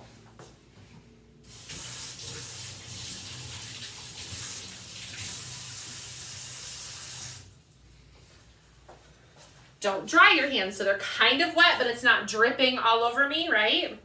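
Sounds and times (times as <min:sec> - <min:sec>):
tap water running over hands: 0:01.5 - 0:07.6.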